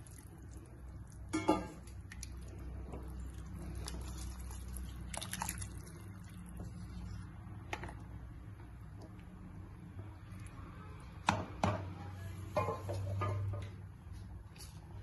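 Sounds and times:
liquid sloshing in a pot: 0:00.0 - 0:09.3.

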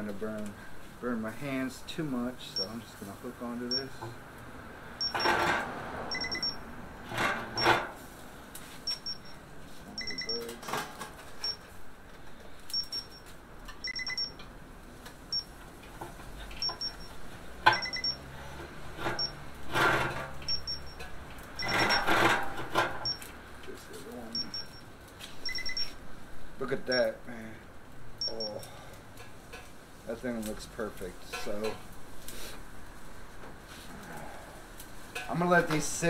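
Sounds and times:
metal hooks clanking on steel drum: 0:31.3 - 0:31.8.

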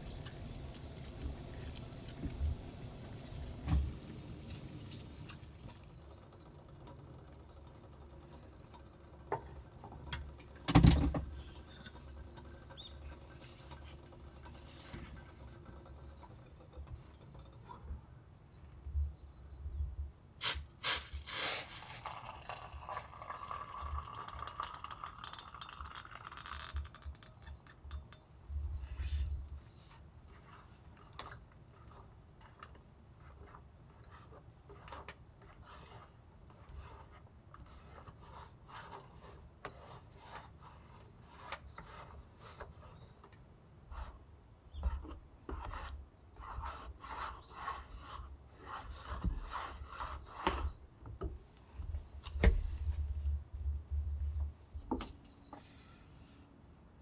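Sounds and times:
paper lid rustling: 0:20.4 - 0:22.4
boiling water pouring into cup: 0:20.4 - 0:27.1.

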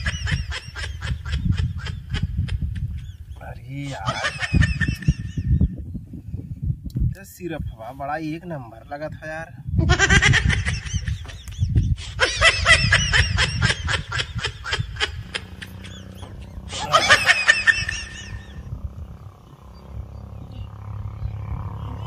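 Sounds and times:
rapid high-pitched laughter: 0:09.8 - 0:18.7.

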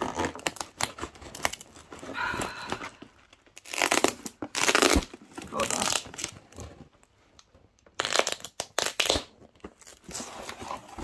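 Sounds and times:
cardboard box tearing open: 0:00.0 - 0:02.0, 0:03.6 - 0:06.7, 0:08.0 - 0:11.0.

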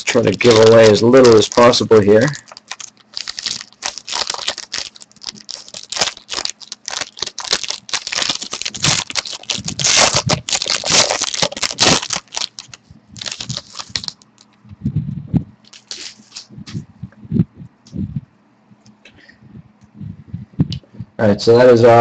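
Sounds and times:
cards and packaging crinkling: 0:00.0 - 0:14.6, 0:15.6 - 0:16.8.

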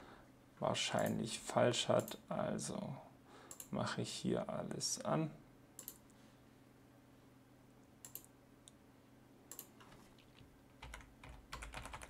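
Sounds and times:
keyboard and mouse clicks: 0:05.8 - 0:06.0, 0:08.0 - 0:08.3, 0:09.5 - 0:12.0.

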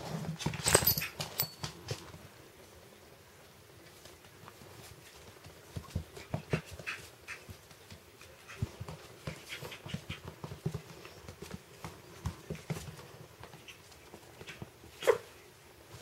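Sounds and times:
puppy paws on wooden floor: 0:03.8 - 0:15.0
puppy yip: 0:15.0 - 0:15.3.

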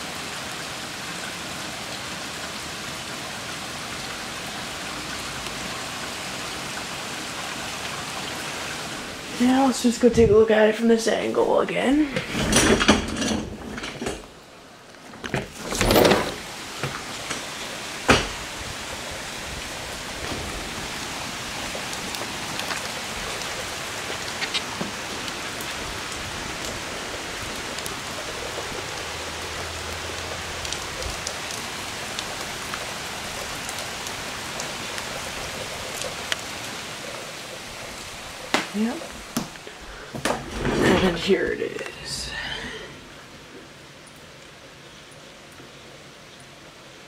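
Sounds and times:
heavy rain pouring: 0:00.0 - 0:47.0
loud knocks and clatters: 0:12.2 - 0:14.3, 0:15.2 - 0:18.4.

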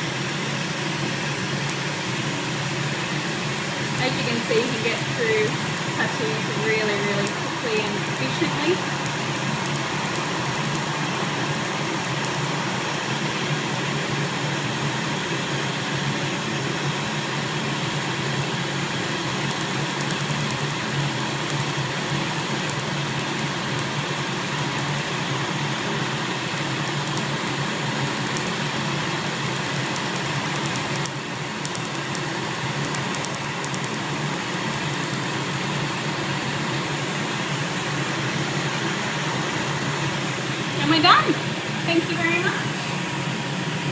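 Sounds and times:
cooling fan whir: 0:00.0 - 0:43.9
laser firing sharp clicks: 0:03.2 - 0:13.8, 0:17.8 - 0:36.6.

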